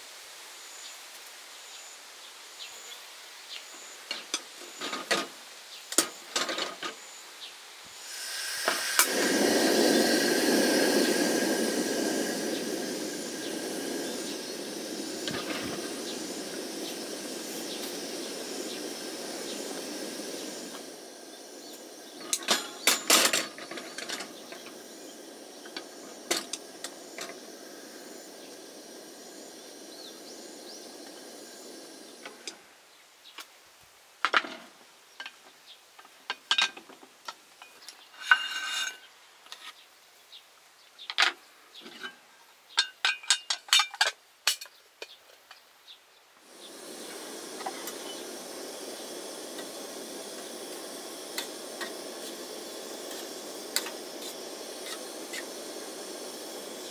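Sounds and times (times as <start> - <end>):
steady hiss: 0.0 - 56.9
camp cookware clinking and scraping: 6.0 - 7.0, 21.6 - 28.3, 36.4 - 36.9, 37.6 - 39.6, 41.2 - 42.2, 42.8 - 45.2, 53.1 - 55.9.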